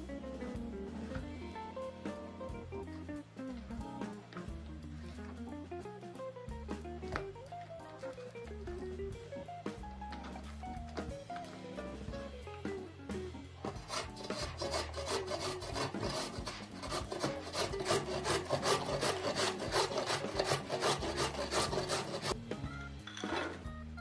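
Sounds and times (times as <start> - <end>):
carrot rasping on metal grater: 13.7 - 22.4.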